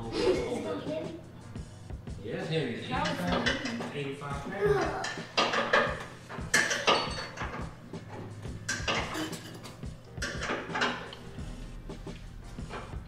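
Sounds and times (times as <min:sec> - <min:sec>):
metallic clinks and clanks: 0:05.4 - 0:07.7.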